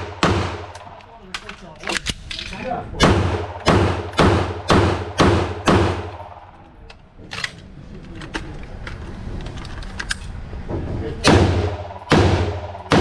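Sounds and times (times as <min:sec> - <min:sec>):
gunshots indoors: 0:00.0 - 0:07.7, 0:11.2 - 0:13.0
metallic clicks of gun handling: 0:00.7 - 0:02.7, 0:06.9 - 0:10.4.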